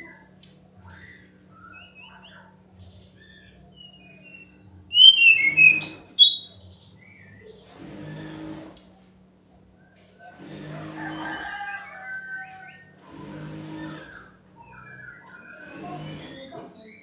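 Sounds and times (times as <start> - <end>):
bird chirping and whistling: 3.3 - 6.6, 14.2 - 15.7.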